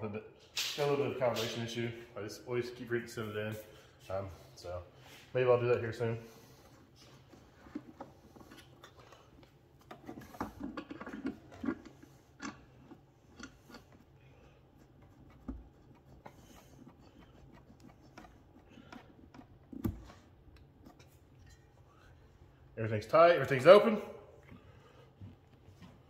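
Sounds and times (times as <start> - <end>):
hose fitting clicks and scrapes: 6.7 - 21.9.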